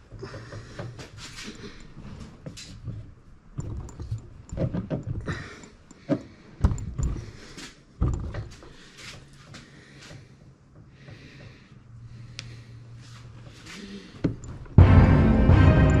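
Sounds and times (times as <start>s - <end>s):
metal parts knocking and clunking: 0.0s - 11.4s.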